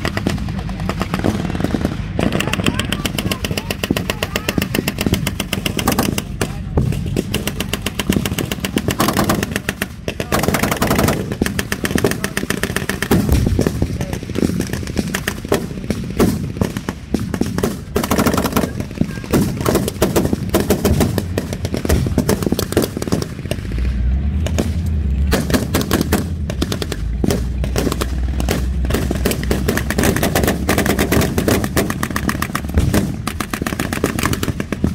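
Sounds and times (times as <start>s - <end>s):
machine-gun bursts: 0.0s - 23.6s, 25.3s - 34.9s
rifle shots: 0.0s - 34.9s
vehicle engine rumble: 0.0s - 34.9s.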